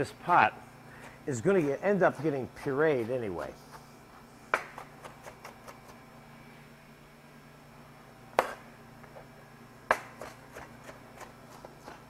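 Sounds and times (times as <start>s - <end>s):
knife chopping on cutting board: 1.0s - 3.8s, 4.5s - 6.0s, 8.4s - 8.6s, 9.9s - 12.0s.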